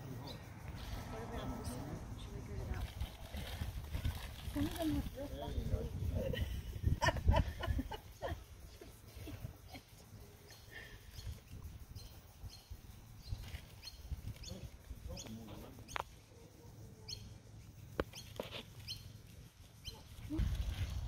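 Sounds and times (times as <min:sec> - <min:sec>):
birds chirping: 0:06.9 - 0:20.3.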